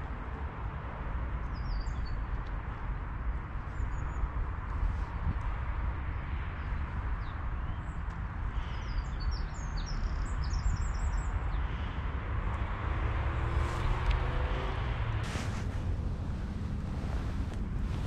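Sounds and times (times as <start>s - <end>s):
low outdoor rumble: 10.9s - 18.0s.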